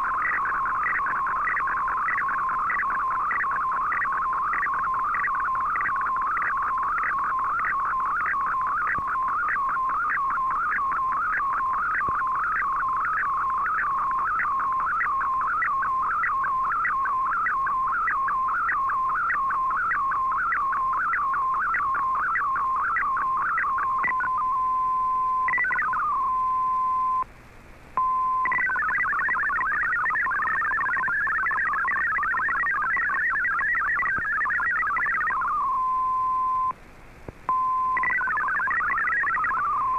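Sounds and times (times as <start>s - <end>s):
steady radio tone: 0.0s - 27.2s, 28.0s - 36.7s, 37.5s - 39.9s
warbling cluster of data tones: 0.0s - 27.3s, 28.1s - 36.8s, 37.5s - 39.9s
wavering digital radio tone: 0.0s - 27.3s, 28.0s - 36.7s, 37.5s - 39.9s.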